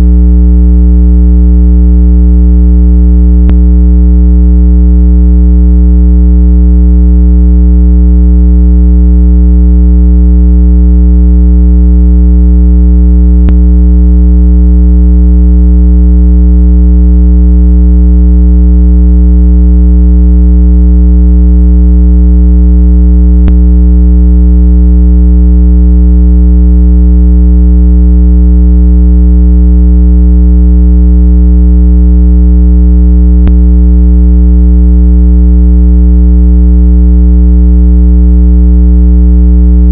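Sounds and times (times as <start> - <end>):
low electronic hum tone: 0.0 - 0.3, 3.4 - 3.7, 13.4 - 13.7.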